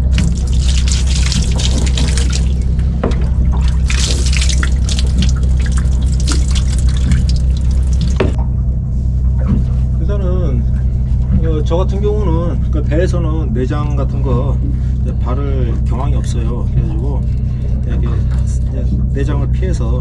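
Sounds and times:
water running and splashing: 0.0s - 8.4s
low steady hum: 0.0s - 20.0s.

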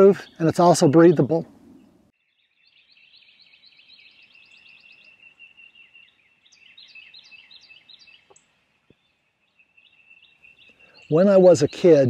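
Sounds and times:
songbirds trilling and chirping: 0.0s - 12.0s.

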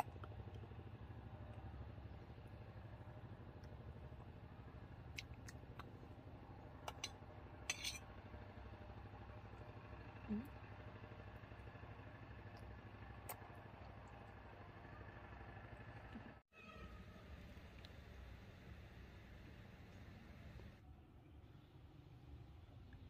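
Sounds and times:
metal spoon clinking: 7.7s - 8.0s.

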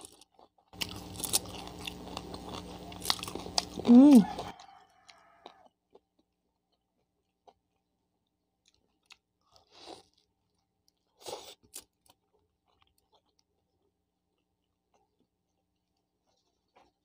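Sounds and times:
wet chewing clicks: 0.0s - 5.6s
crunchy bites: 0.8s - 4.6s.

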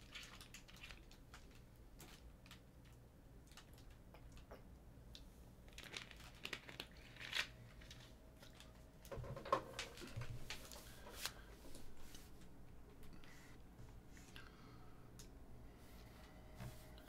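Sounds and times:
packaging crinkling and rustling: 0.0s - 4.5s, 5.7s - 12.4s.

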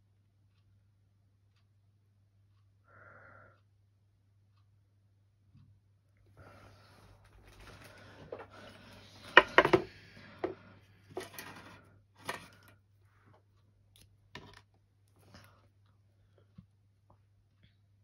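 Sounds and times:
plastic bags rustling: 7.0s - 9.9s
plastic clicks and rattles: 7.3s - 12.8s.

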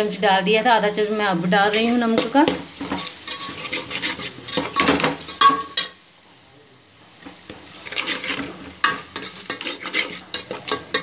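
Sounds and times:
metal spoon scraping a steel pot: 2.2s - 5.5s, 7.8s - 11.0s.

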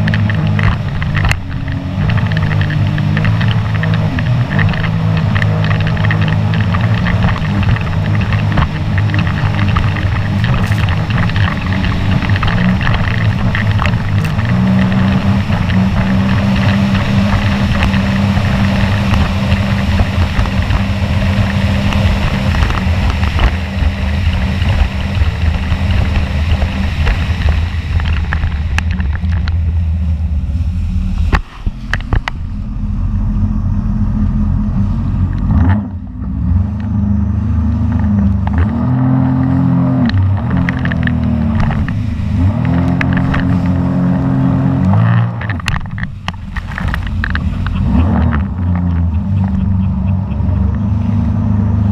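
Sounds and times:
wind on microphone: 0.0s - 35.6s, 37.8s - 51.9s
jet ski engine running: 0.0s - 51.9s.

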